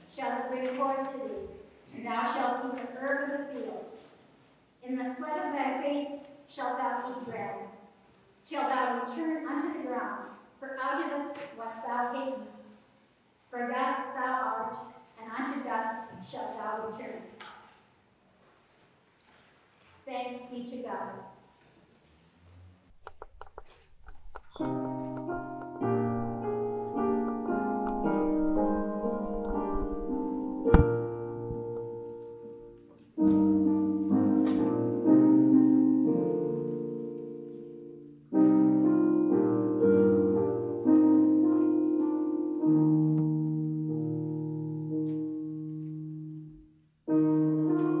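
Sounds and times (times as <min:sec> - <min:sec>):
piano playing slow chords: 0:24.5 - 0:48.0.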